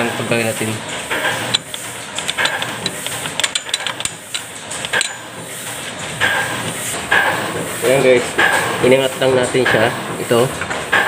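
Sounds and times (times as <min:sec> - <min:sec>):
small metallic clicks and knocks: 0:01.5 - 0:05.2.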